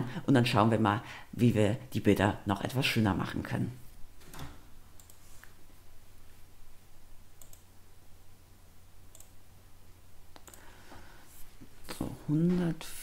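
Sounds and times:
low steady hum: 0:00.0 - 0:13.0
computer mouse clicks: 0:04.2 - 0:05.6, 0:07.4 - 0:07.7, 0:09.1 - 0:09.4, 0:10.3 - 0:10.7.

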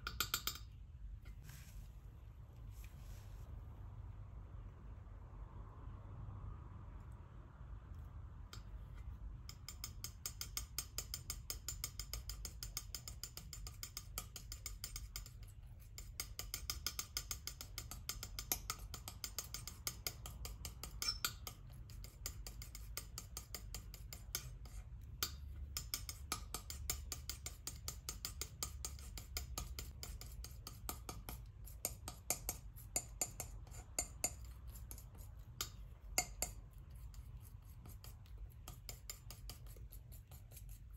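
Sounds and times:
palette knife scraping paint: 0:08.6 - 0:40.9.

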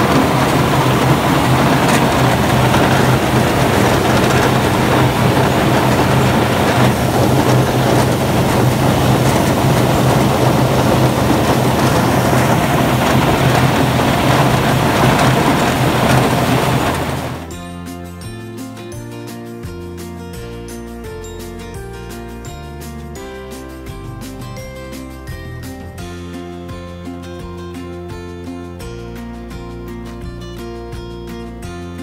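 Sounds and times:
golf balls rattling in water: 0:00.0 - 0:17.5
machine low hum: 0:00.0 - 0:17.5.

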